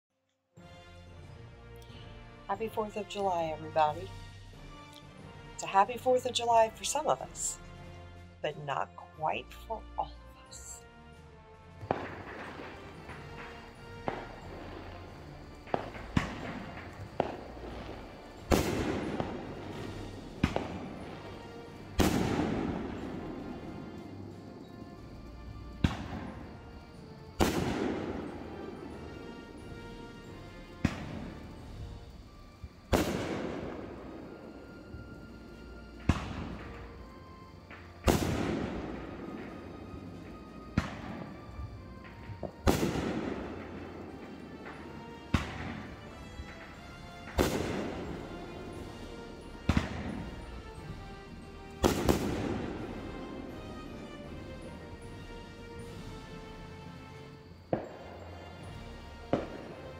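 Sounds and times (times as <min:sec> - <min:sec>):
fireworks exploding: 0:11.8 - 0:55.2, 0:57.2 - 0:59.9.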